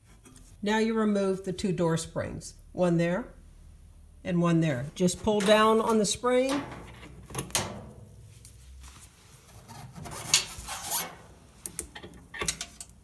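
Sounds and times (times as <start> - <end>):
scraping on sheet metal: 9.5 - 11.3.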